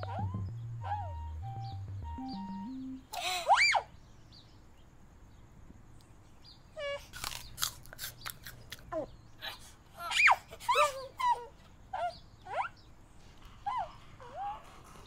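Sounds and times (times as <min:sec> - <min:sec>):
apple crunching: 0:07.1 - 0:08.9.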